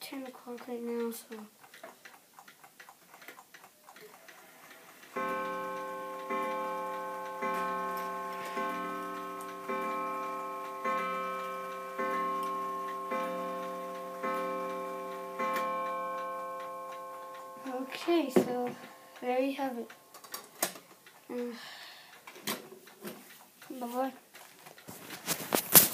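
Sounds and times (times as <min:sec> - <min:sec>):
mantel clock striking on gong: 0:05.1 - 0:20.2.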